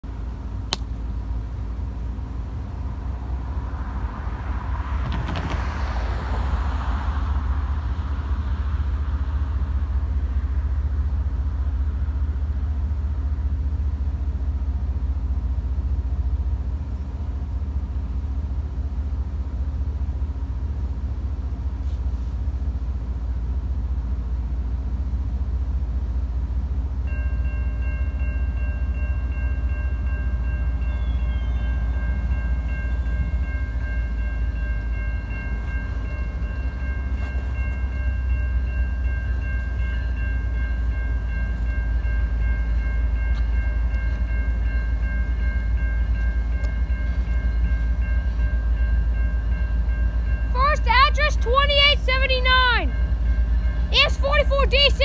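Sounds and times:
vehicle passing: 3.0s - 10.9s
crossing warning bell ringing: 26.8s - 55.0s.

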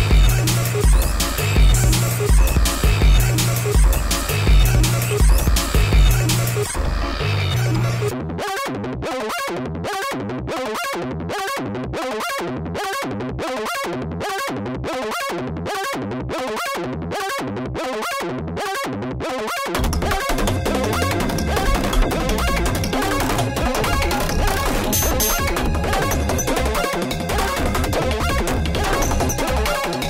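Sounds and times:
pulsing background music: 0.0s - 8.2s, 19.7s - 30.0s.

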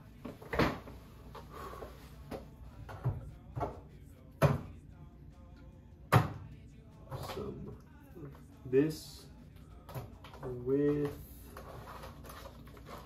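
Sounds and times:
objects knocking and clunking: 2.3s - 4.7s.

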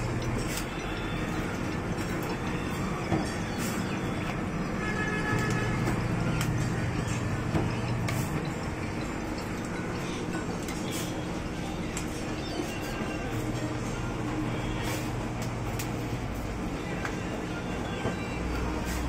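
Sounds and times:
bottle-filling machine humming: 0.0s - 13.6s.

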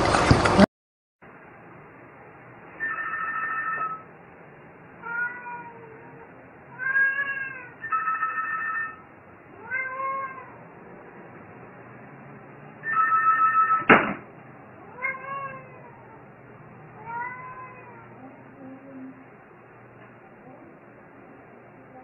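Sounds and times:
cat meowing: 2.8s - 4.0s, 5.0s - 10.7s, 12.8s - 13.9s, 14.8s - 16.3s, 17.0s - 18.4s
telephone ringing: 2.8s - 4.1s, 7.8s - 9.0s, 12.8s - 13.9s.

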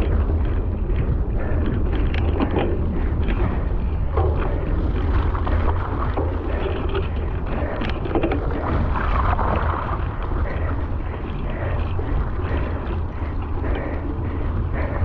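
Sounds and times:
bike tyres in mud: 0.0s - 15.0s
wind rumble on microphone: 0.0s - 15.0s.

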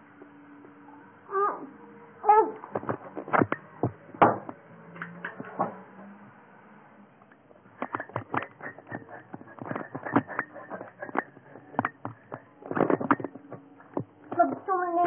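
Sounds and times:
sharp clicks and knocks: 2.6s - 5.8s, 7.3s - 14.7s.

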